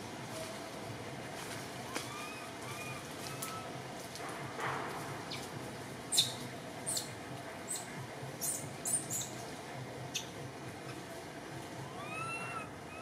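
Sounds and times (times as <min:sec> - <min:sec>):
baby monkey squeaking: 0:02.1 - 0:03.6, 0:06.1 - 0:07.1, 0:07.7 - 0:09.3, 0:11.9 - 0:13.0.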